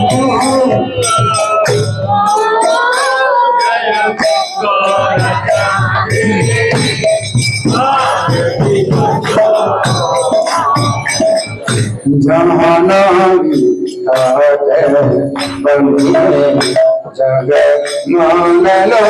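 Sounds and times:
man chanting into microphone: 0.0 - 2.2, 12.0 - 19.0
people clapping: 0.0 - 3.5, 7.7 - 12.0
group singing: 0.0 - 19.0
jingling percussion and drum: 0.0 - 19.0.

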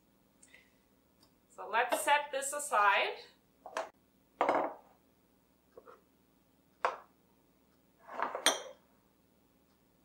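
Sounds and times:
glass bowls set down on countertop: 3.7 - 4.8.

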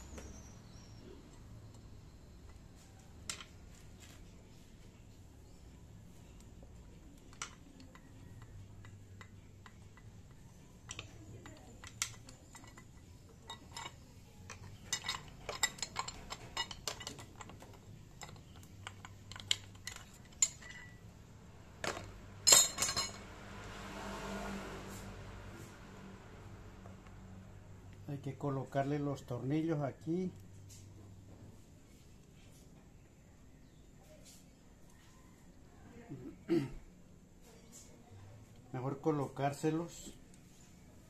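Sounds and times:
metallic clicks of tool and screws: 7.2 - 21.0.

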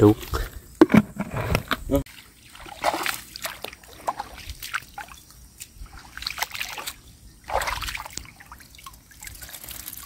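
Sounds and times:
boots wading through water: 2.1 - 10.0.

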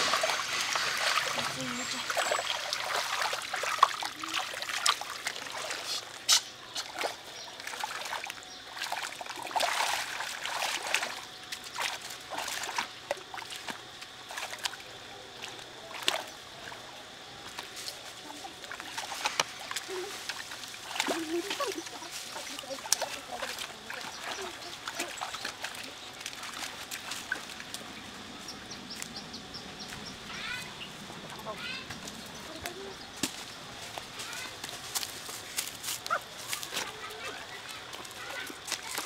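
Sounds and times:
splashing in muddy water: 0.0 - 28.2, 32.4 - 39.0.

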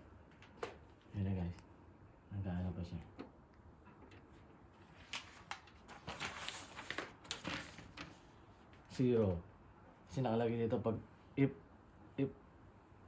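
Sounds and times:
packaging rustling and crinkling: 4.9 - 8.3.

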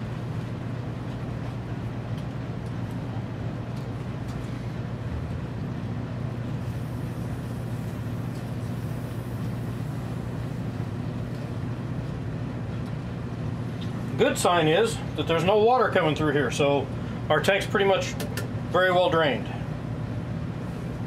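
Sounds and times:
low machine hum: 0.0 - 21.0.

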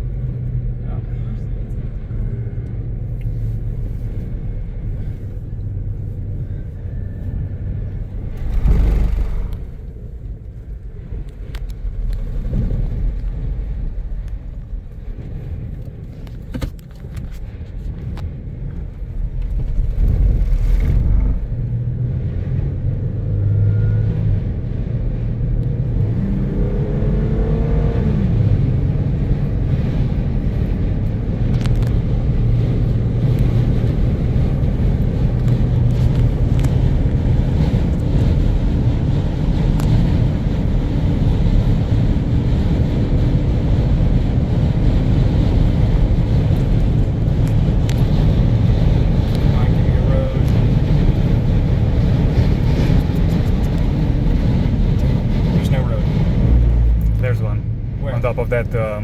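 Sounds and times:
car road and engine rumble: 0.0 - 59.0
engine tone rising and dropping: 6.8 - 10.3, 19.7 - 30.5.

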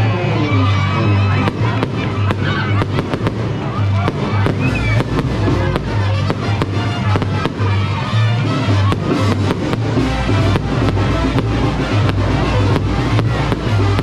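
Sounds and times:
loud music with pulsing bass: 0.0 - 14.0
fireworks popping and banging: 1.4 - 14.0.

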